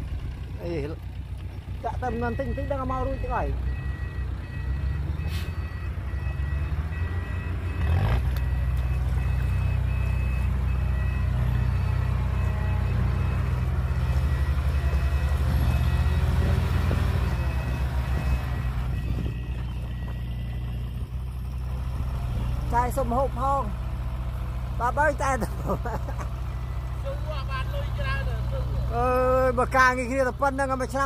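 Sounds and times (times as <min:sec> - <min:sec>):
diesel truck engine running: 0:00.0 - 0:31.0
reversing alarm beeping: 0:01.9 - 0:21.1, 0:26.5 - 0:29.8.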